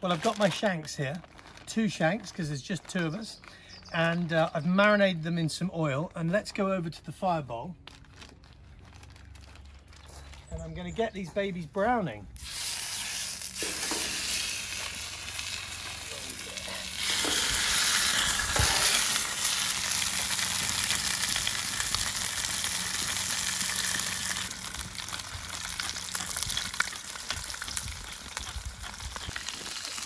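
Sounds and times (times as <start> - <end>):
meat sizzling in hot oil: 12.4 - 30.0.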